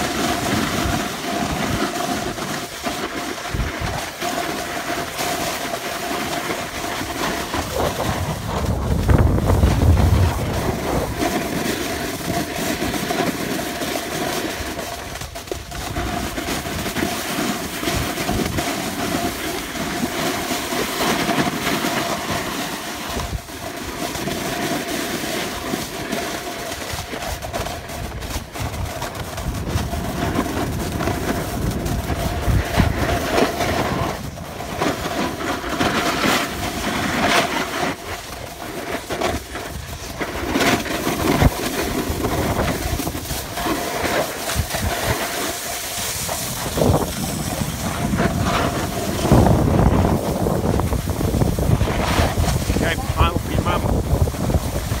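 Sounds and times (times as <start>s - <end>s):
skis scraping on snow: 0.0s - 55.0s
wind buffeting microphone: 6.8s - 12.6s, 27.4s - 35.1s, 39.4s - 55.0s.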